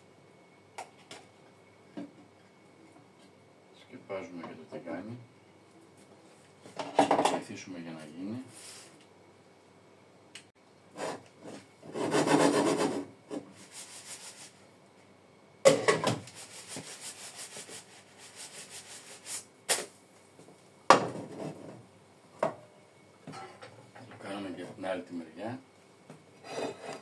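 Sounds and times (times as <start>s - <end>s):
frying pan scraping on hotplate: 26.4s - 27.0s.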